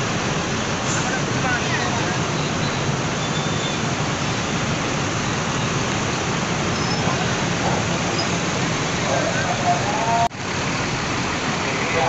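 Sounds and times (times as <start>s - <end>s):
bus engines idling: 0.0s - 12.0s.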